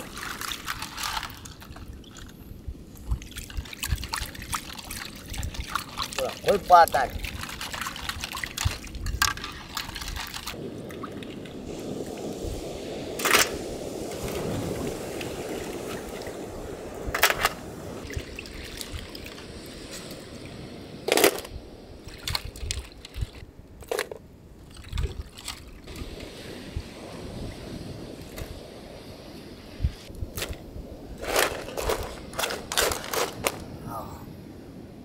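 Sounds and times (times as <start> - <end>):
water sloshing and trickling: 0.0 - 27.6
sharp water splashes: 3.0 - 12.1.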